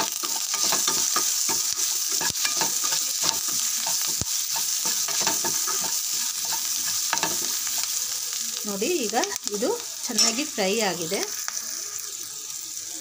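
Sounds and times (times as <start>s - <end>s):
spatula scraping a pan: 0.0s - 8.1s
onions sizzling in oil: 0.0s - 13.0s
spatula knocking on a pan: 0.6s - 7.6s.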